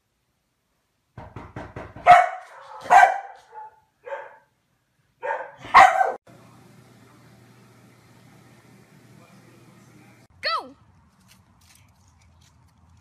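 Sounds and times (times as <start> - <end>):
dog barking: 2.0 - 4.5, 5.2 - 6.2.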